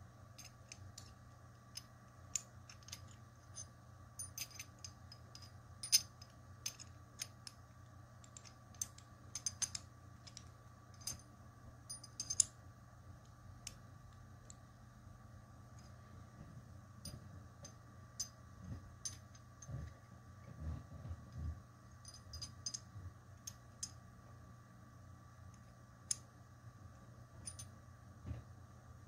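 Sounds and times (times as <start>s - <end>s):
metal puzzle pieces clicking: 0.4s - 7.6s, 8.2s - 11.2s.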